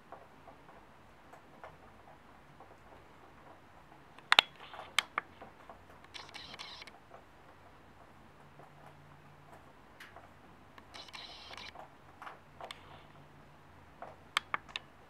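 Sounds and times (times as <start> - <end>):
sharp clicks: 4.2 - 7.0, 10.8 - 13.2, 14.0 - 14.9.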